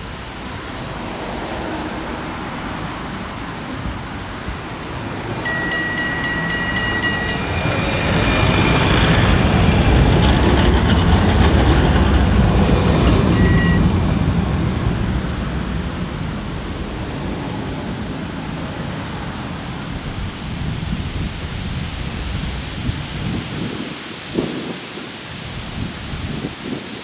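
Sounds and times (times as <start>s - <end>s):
vehicle rumble: 0.0s - 23.3s
short high steady tone: 5.4s - 8.2s.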